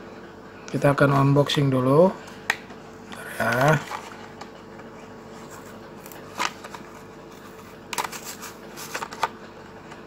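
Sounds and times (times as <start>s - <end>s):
plastic packaging crinkling: 6.0s - 9.3s.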